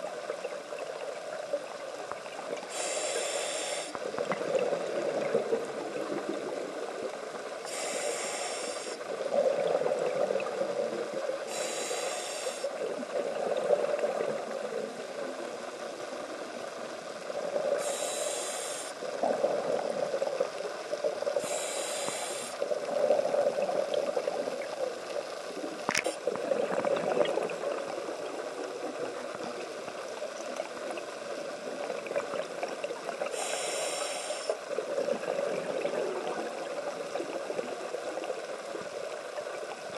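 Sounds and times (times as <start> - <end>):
regulator hissing inhalations: 2.7 - 4.0, 7.7 - 9.1, 11.5 - 12.8, 17.8 - 19.0, 21.4 - 22.6, 33.3 - 34.6
bubbling exhaled air: 7.7 - 15.0, 17.4 - 24.8, 26.0 - 29.4.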